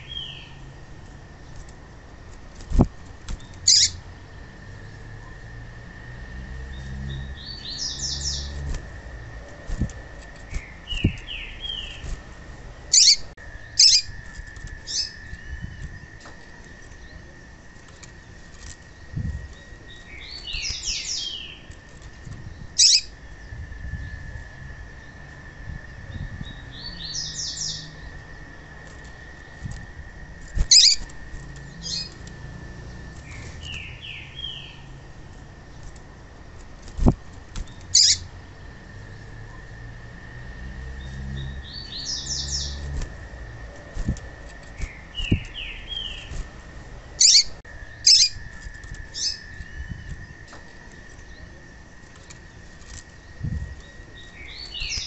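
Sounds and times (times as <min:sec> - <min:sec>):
sharp bird chips: 0:02.7 - 0:04.0, 0:09.5 - 0:12.2, 0:12.9 - 0:16.0, 0:17.8 - 0:21.8, 0:22.4 - 0:23.2, 0:30.5 - 0:32.3, 0:36.9 - 0:38.3, 0:43.8 - 0:46.5, 0:47.2 - 0:50.2, 0:52.1 - 0:55.0
bird chattering calls: 0:03.6 - 0:04.0, 0:12.9 - 0:14.2, 0:22.8 - 0:23.1, 0:30.6 - 0:31.1, 0:37.9 - 0:38.3, 0:47.2 - 0:48.4.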